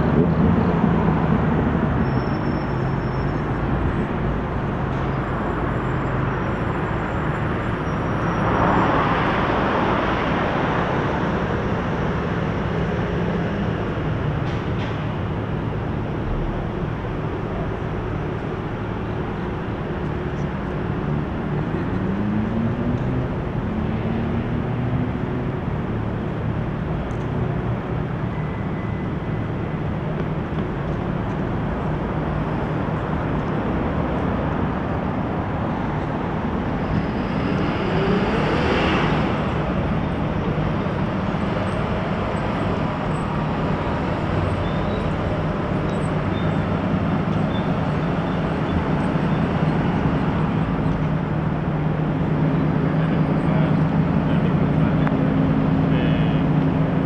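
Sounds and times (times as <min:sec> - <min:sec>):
low engine hum: 0:00.0 - 0:57.0
road traffic noise: 0:00.0 - 0:57.0
vehicle passing: 0:33.1 - 0:45.7.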